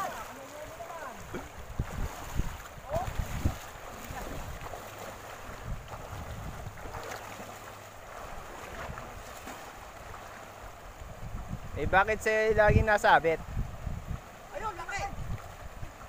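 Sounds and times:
water splashing around legs: 0.0s - 11.1s
river running over rocks: 0.0s - 11.6s
wind on microphone: 1.1s - 7.5s, 8.2s - 16.0s.

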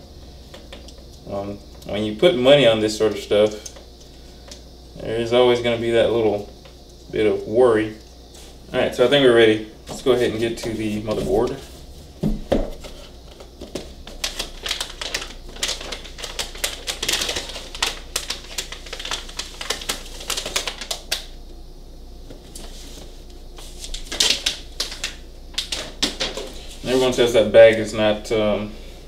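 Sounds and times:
plastic bag crinkling: 12.9s - 21.3s, 23.6s - 27.4s.

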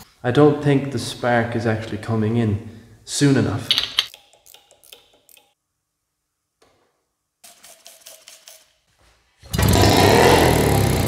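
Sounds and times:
outboard motor pull-start rattles: 9.5s - 11.0s.

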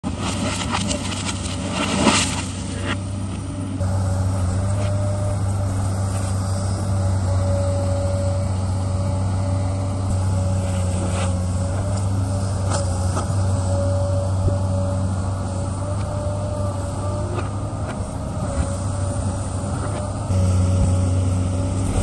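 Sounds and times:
excavator diesel engine running: 0.0s - 22.0s.

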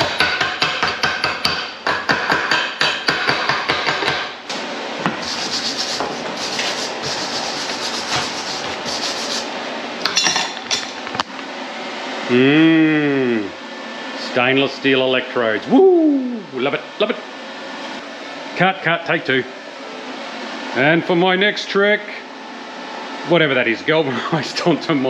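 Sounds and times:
chipping hammer tapping metal: 0.0s - 4.3s
wire brush scratching metal: 5.2s - 9.5s.

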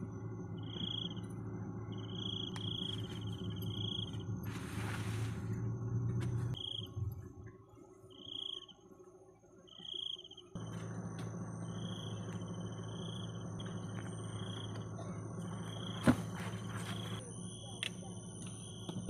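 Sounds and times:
low steady hum: 0.0s - 10.0s, 10.6s - 19.0s
crickets chirping: 0.0s - 19.0s
high-pitched insect drone: 8.1s - 8.8s, 9.6s - 14.8s.

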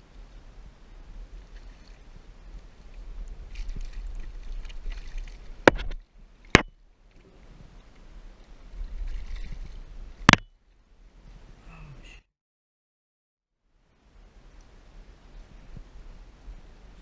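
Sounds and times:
water splashing from thrashing fish: 3.5s - 5.7s.

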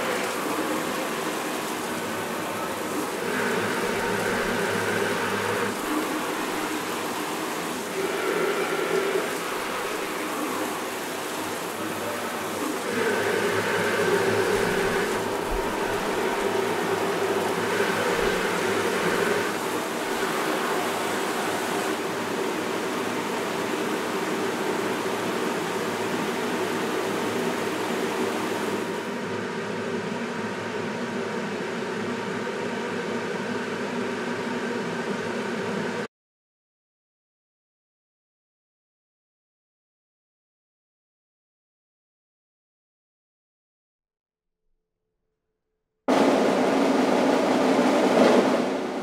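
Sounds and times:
shower water spraying: 0.0s - 29.1s.

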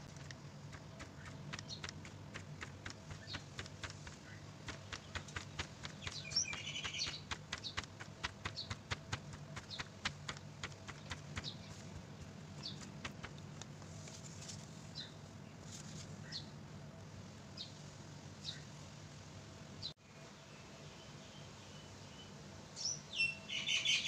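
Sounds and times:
faint steady hum: 0.0s - 24.0s
bird chirping: 0.2s - 13.4s, 19.8s - 24.0s
bird warbling call: 5.9s - 7.8s.

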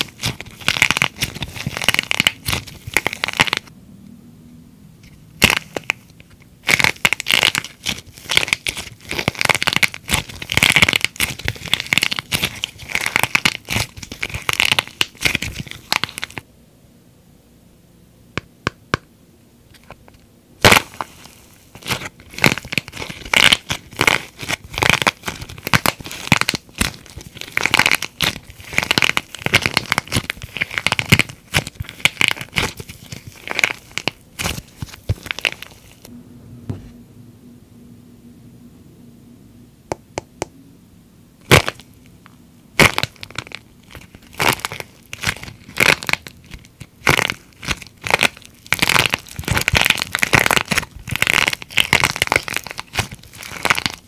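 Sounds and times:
plaster cracking and crunching: 0.0s - 3.7s, 6.6s - 16.4s, 20.6s - 36.0s, 41.5s - 41.9s, 42.8s - 54.0s.

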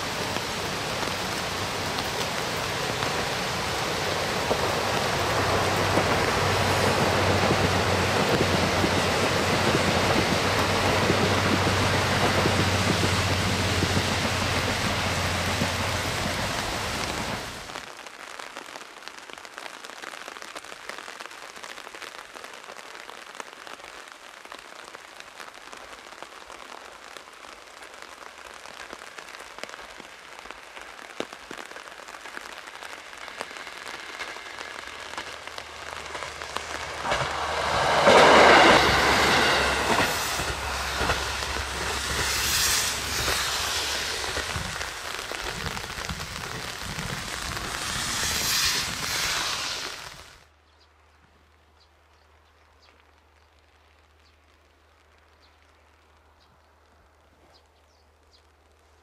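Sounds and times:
diesel railcar passing: 0.0s - 17.7s, 33.0s - 50.4s
steady rain: 0.0s - 59.0s.

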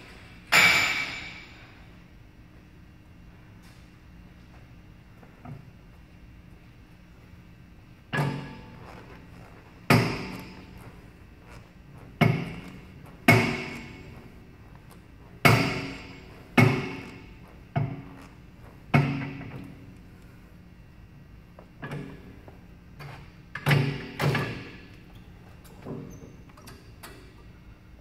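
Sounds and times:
exercise machine metal clanking: 8.1s - 19.9s, 21.7s - 22.5s, 23.1s - 27.4s.

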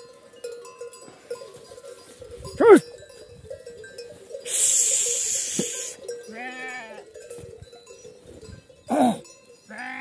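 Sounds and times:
sheep and goats bleating: 4.1s - 7.8s, 8.7s - 10.0s.

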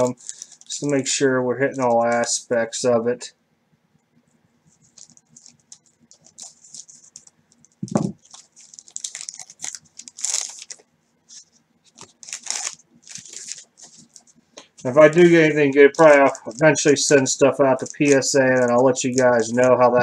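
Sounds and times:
paper wrappers crinkling and tearing: 0.0s - 1.1s, 4.7s - 20.0s.

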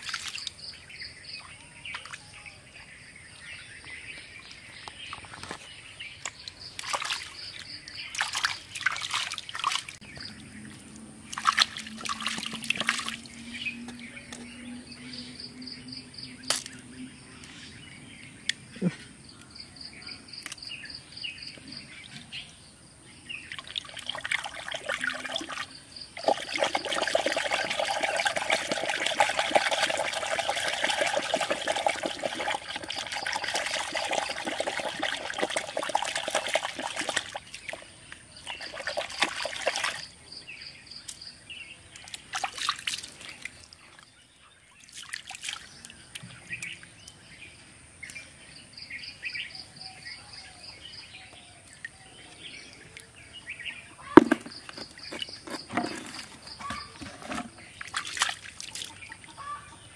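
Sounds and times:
muddy water sloshing and splashing: 0.0s - 0.6s, 6.4s - 13.8s, 23.5s - 40.2s, 41.9s - 44.1s, 44.8s - 47.0s, 54.0s - 59.7s
insects chirping: 0.0s - 29.0s, 30.0s - 44.1s, 45.0s - 58.8s.

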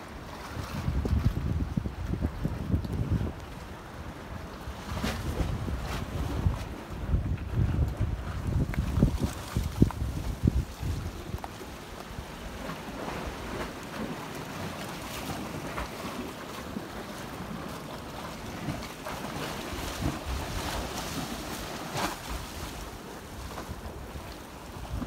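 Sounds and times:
sea washing against rocky shore: 0.0s - 25.0s
wind buffeting microphone: 0.2s - 14.0s.

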